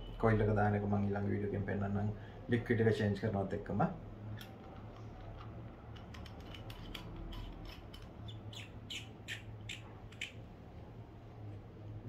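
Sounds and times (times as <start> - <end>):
metal parts screwing together: 4.3 - 10.4.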